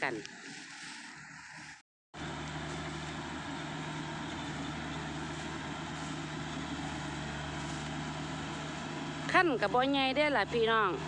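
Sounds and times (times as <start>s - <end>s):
combine harvester engine running: 2.2s - 11.0s.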